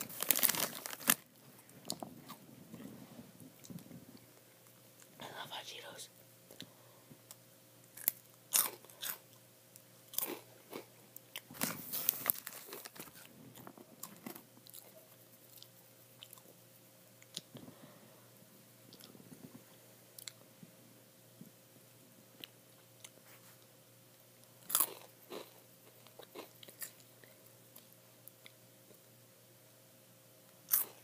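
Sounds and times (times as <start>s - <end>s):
crunchy snacks being chewed: 0.0s - 2.4s, 7.9s - 9.4s, 10.1s - 16.5s, 24.6s - 28.6s, 30.7s - 31.0s.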